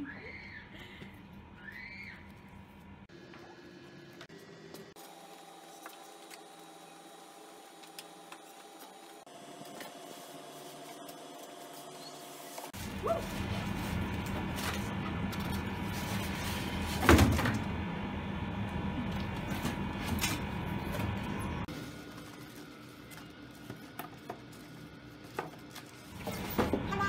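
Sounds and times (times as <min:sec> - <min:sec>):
styrofoam rubbing and scraping: 0:08.4 - 0:17.1.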